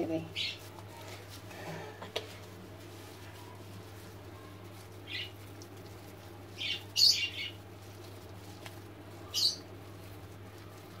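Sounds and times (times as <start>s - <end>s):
faint steady hum: 0.0s - 11.0s
bird chirping: 5.0s - 5.4s, 6.5s - 7.6s, 9.2s - 9.7s.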